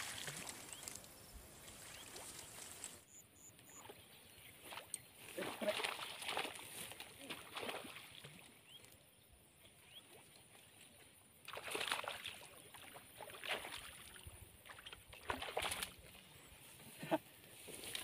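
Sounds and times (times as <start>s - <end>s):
fish splashing and thrashing: 0.0s - 1.1s, 4.6s - 8.4s, 11.5s - 16.2s.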